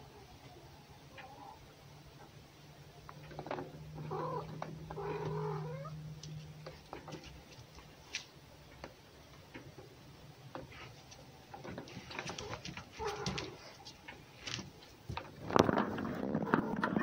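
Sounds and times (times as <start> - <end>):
cat growling and yowling: 4.0 - 6.1, 12.4 - 13.6
light clicks and scuffles: 6.2 - 8.3, 10.5 - 15.3.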